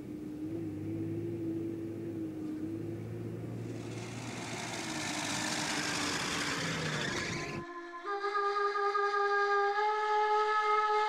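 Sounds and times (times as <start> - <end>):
vehicle engine droning: 0.0 - 7.7
rushing noise: 3.6 - 7.6.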